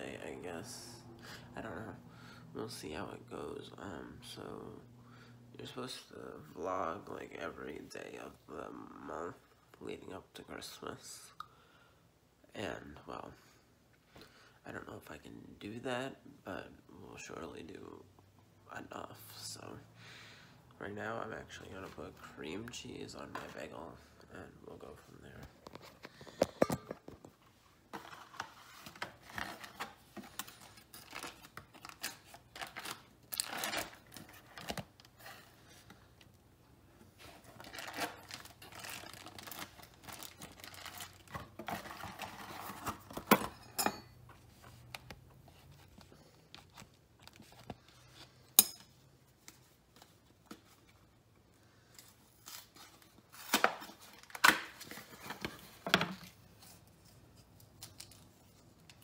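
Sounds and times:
foil wrapper crinkling and tearing: 0:29.2 - 0:35.2, 0:37.3 - 0:43.0.

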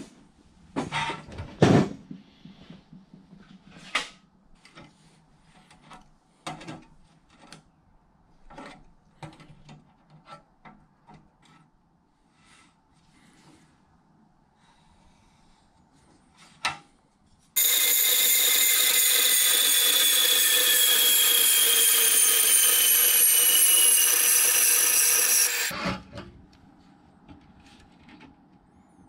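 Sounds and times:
bandsaw cutting steel: 0:17.6 - 0:25.9.

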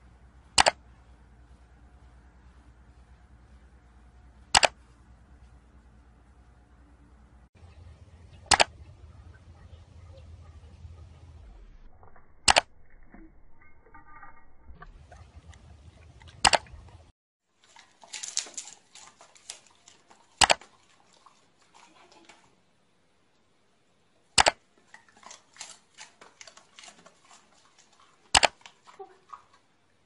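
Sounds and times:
loud sharp clicks: 0:00.6 - 0:00.8, 0:04.6 - 0:04.8, 0:08.5 - 0:08.7, 0:24.4 - 0:24.6.

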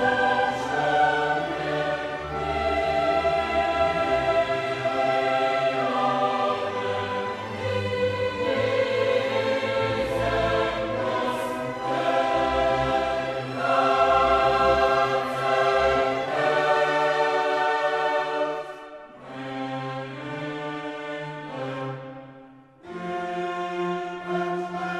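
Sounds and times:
choir singing held notes: 0:00.0 - 0:19.3
orchestra: 0:00.0 - 0:24.9.

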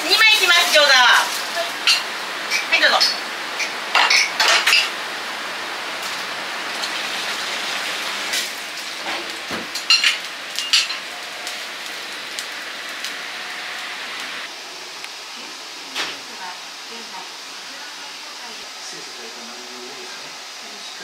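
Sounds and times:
food sizzling in hot oil: 0:00.0 - 0:14.6
metal utensils clanking: 0:01.6 - 0:04.9, 0:09.8 - 0:11.3.

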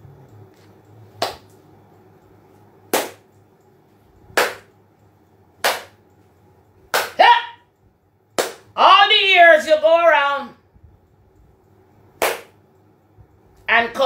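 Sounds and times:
single hand claps: 0:01.2 - 0:01.5, 0:02.9 - 0:03.3, 0:04.4 - 0:04.7, 0:05.6 - 0:06.0, 0:06.9 - 0:07.2, 0:08.4 - 0:08.7, 0:12.2 - 0:12.6.

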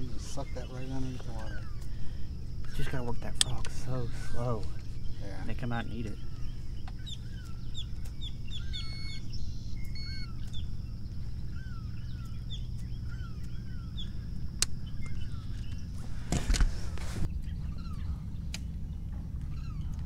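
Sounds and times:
constant low rumble: 0:00.0 - 0:20.0
marsh birds chirping and calling: 0:00.0 - 0:20.0
sharp click: 0:14.6 - 0:16.7.

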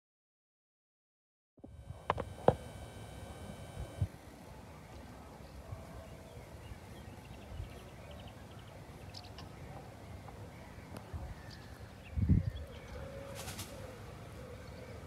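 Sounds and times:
low rumble of wind: 0:11.0 - 0:13.0.

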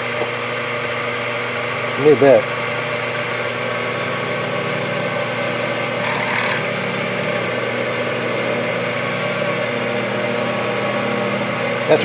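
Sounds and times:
lathe motor humming: 0:00.0 - 0:12.0
drill bit boring into workpiece: 0:04.0 - 0:07.4.

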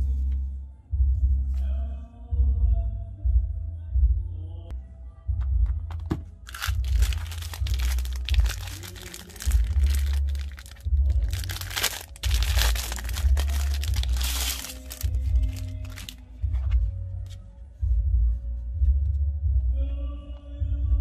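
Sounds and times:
low handling rumble: 0:01.0 - 0:21.0
plastic packaging crinkling and tearing: 0:06.5 - 0:16.2.

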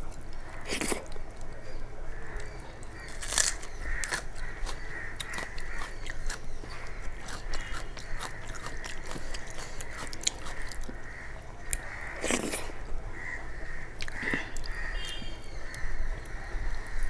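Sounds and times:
wet chewing and mouth clicks: 0:02.4 - 0:11.0, 0:14.0 - 0:16.4.

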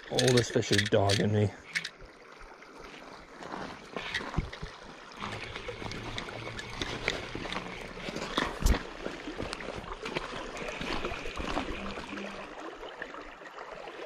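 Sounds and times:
fishing reel clicking: 0:00.0 - 0:02.0, 0:05.5 - 0:07.9
river water flowing: 0:00.0 - 0:14.0.

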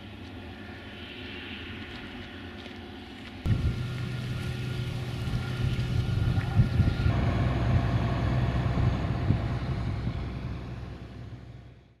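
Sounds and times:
tractor diesel engine running: 0:03.5 - 0:12.0.

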